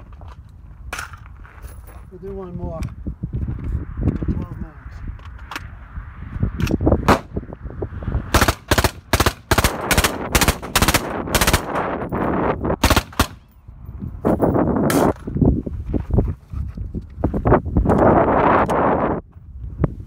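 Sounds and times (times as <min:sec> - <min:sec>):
suppressed automatic gunfire: 0:08.3 - 0:11.8, 0:12.8 - 0:13.4.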